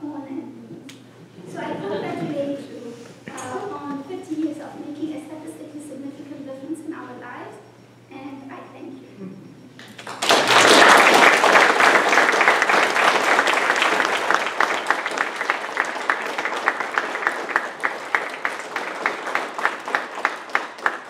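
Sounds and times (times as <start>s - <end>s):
audience applauding: 9.8s - 21.0s.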